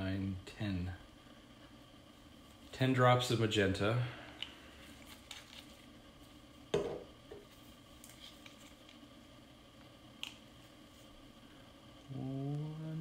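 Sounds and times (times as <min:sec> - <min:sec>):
bottle knocking on wooden table: 0:06.7 - 0:07.1.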